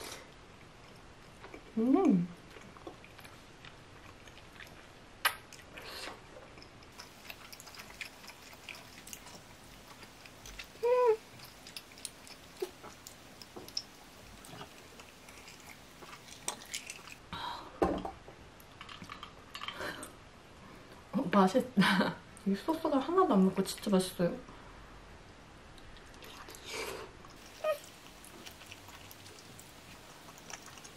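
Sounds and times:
person chewing food: 2.4s - 17.2s, 27.3s - 30.9s.

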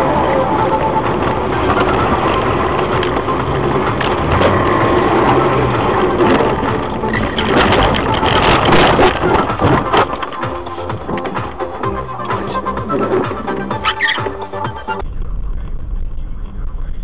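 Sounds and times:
car crunching through snow: 0.0s - 15.0s
tyres and engine rumbling: 0.0s - 16.8s.

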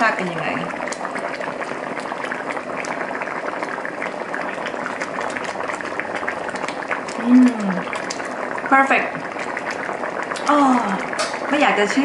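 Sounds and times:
curry bubbling in a wok: 0.0s - 12.0s.

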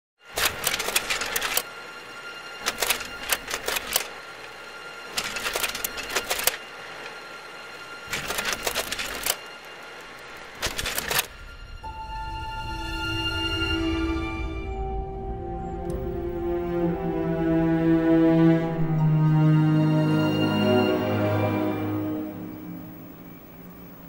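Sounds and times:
droning music: 0.2s - 24.0s
typewriter keys clattering: 0.4s - 1.7s, 2.6s - 4.1s, 5.1s - 6.6s, 8.1s - 9.4s, 10.6s - 11.3s.

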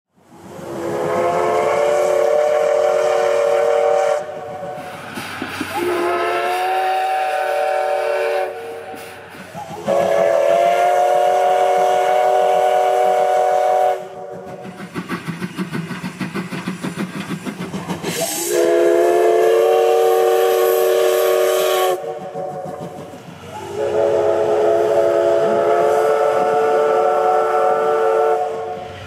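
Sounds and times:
locomotive steam whistle blasts: 0.6s - 4.5s, 5.7s - 14.5s, 18.1s - 22.4s, 23.5s - 29.0s.

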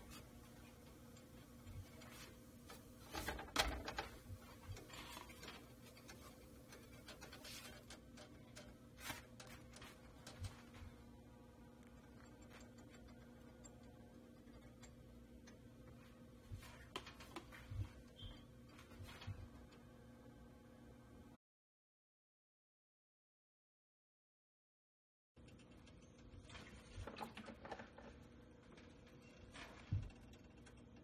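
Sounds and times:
faint steady hum: 0.0s - 21.4s
tortilla scraping and rustling: 4.3s - 10.5s.

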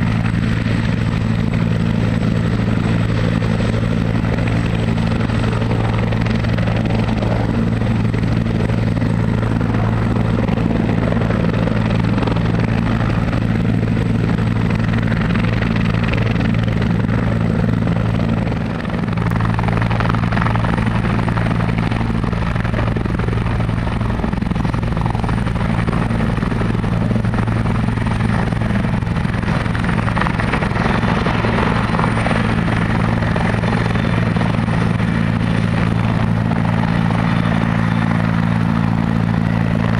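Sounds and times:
helicopter rotor hum: 0.0s - 39.9s
high turbine whine: 0.0s - 39.9s.

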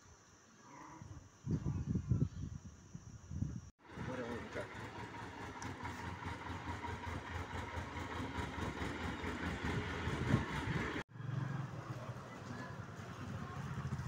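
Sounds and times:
tractor engine idling: 3.8s - 11.0s.

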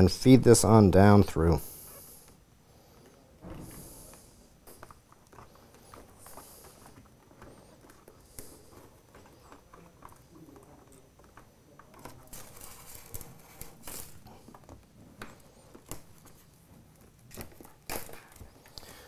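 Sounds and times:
wires scraping against acrylic: 4.1s - 19.0s.

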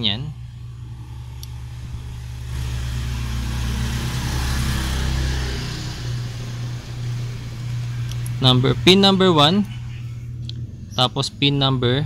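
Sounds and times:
steady low hum: 0.0s - 12.0s
vehicle engine running: 0.0s - 12.0s.

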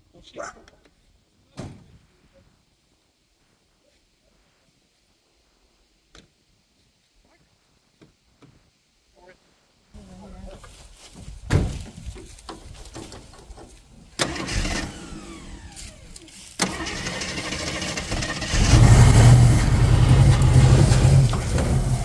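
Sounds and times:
engine starter cranking: 14.2s - 22.0s
car engine running: 16.6s - 22.0s.

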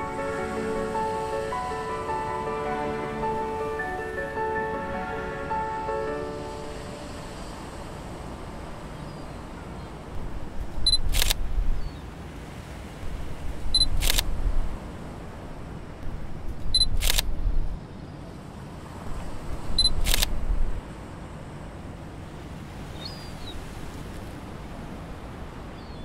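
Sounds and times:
camera shutter click: 10.9s - 11.4s, 13.8s - 14.3s, 16.8s - 17.3s, 19.9s - 20.3s.

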